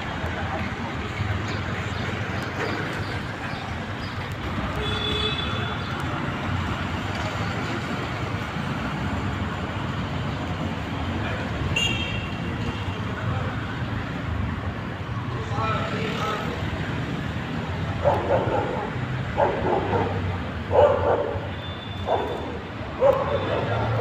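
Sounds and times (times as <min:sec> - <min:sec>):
street traffic noise: 0:00.0 - 0:24.0.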